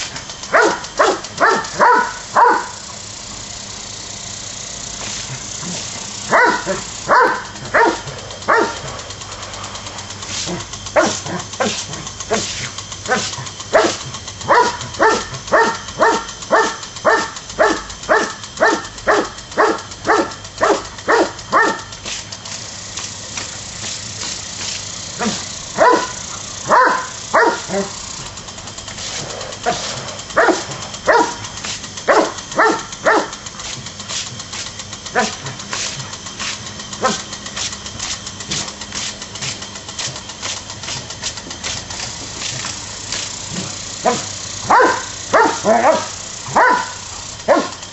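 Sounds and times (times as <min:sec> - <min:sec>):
dog barking: 0:00.5 - 0:02.8, 0:06.3 - 0:08.9, 0:11.0 - 0:12.5, 0:13.1 - 0:21.9, 0:25.2 - 0:27.9, 0:29.6 - 0:31.5, 0:32.1 - 0:33.4, 0:35.1 - 0:35.6, 0:37.0 - 0:37.2, 0:43.5 - 0:47.8.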